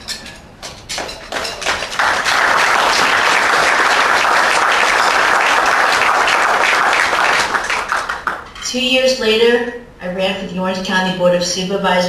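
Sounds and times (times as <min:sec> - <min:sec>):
audience applauding: 0:01.2 - 0:08.5.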